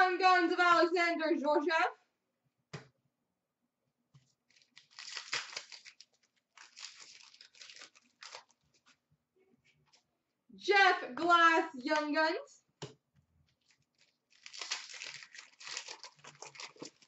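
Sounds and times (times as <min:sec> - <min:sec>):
wrapper crinkling and tearing: 0:04.5 - 0:08.9, 0:13.6 - 0:17.0.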